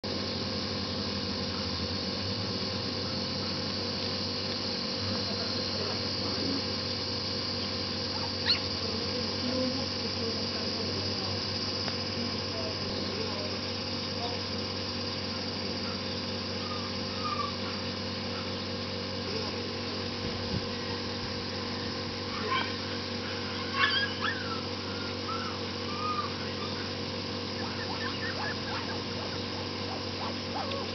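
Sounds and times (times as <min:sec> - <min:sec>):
outdoor background hum: 0:00.0 - 0:30.9
puppy whimpering and yipping: 0:08.4 - 0:08.6, 0:16.6 - 0:17.5, 0:23.7 - 0:26.9, 0:27.6 - 0:30.8.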